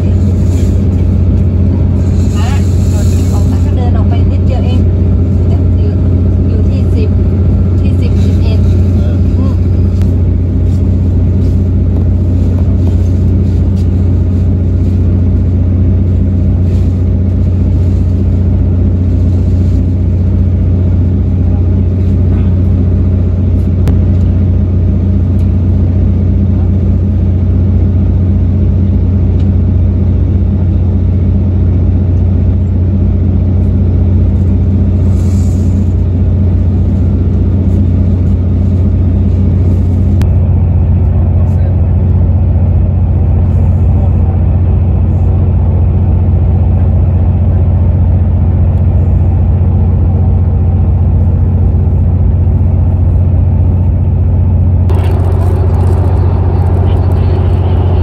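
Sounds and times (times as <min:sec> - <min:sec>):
train rumbling inside coach: 0:00.0 - 0:58.0.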